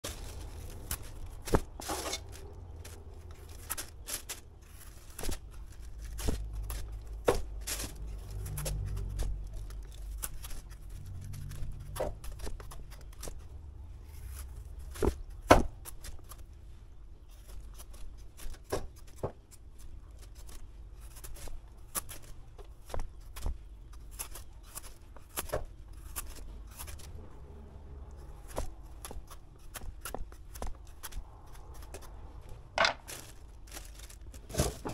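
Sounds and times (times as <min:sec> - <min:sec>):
knife scraping fruit: 0:00.1 - 0:13.4, 0:17.2 - 0:27.4.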